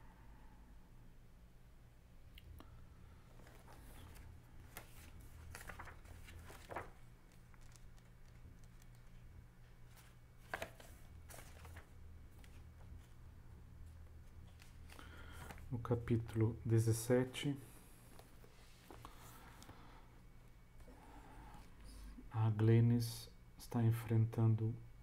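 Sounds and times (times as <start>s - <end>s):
steady low hum: 0.0s - 25.0s
book pages rustling: 3.3s - 15.7s.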